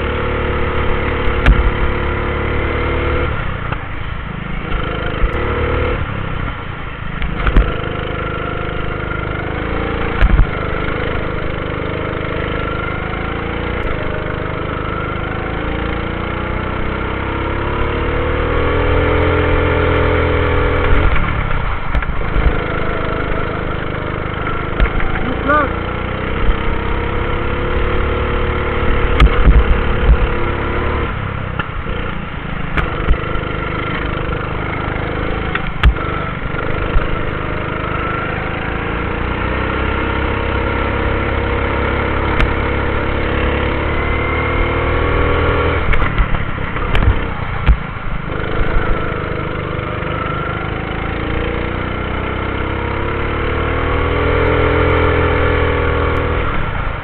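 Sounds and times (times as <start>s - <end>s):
go-kart engine: 0.0s - 57.0s
sharp knocks: 10.2s - 10.5s.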